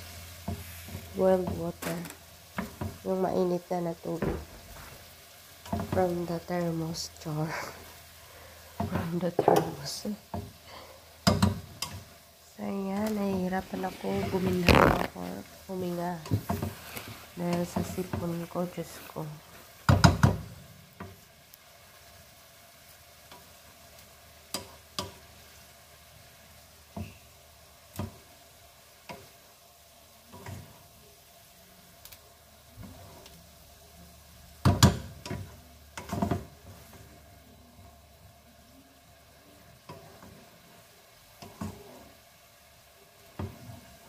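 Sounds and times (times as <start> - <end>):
faint sizzle: 0.0 - 44.0
wooden spatula knocking a pan: 2.5 - 3.0, 5.6 - 6.1, 8.8 - 10.6, 11.2 - 12.0, 16.2 - 16.8, 17.5 - 18.4, 19.8 - 21.2, 34.6 - 36.7.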